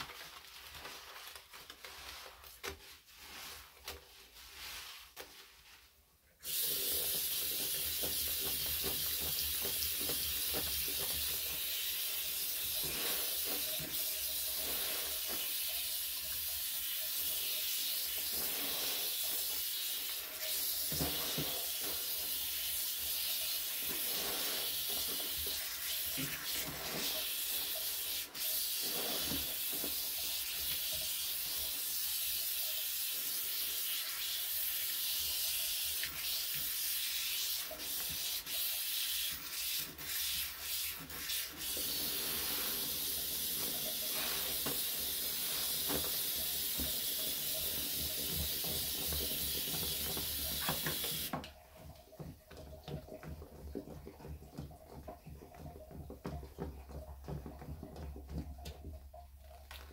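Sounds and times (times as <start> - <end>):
steady high hiss: 41.5 - 51.4.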